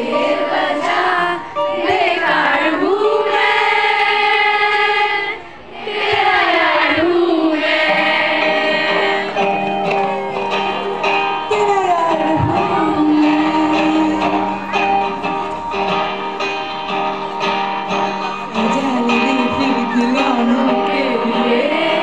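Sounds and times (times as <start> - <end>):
crowd of girls singing along: 0.0 - 10.0, 12.1 - 16.9, 18.5 - 22.0
acoustic guitar: 0.0 - 22.0
girl singing into microphone: 11.7 - 14.8.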